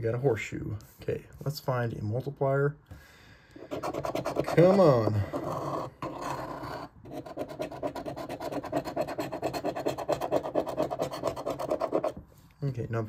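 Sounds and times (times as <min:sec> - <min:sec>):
coin scratching lottery ticket: 0:03.6 - 0:12.2.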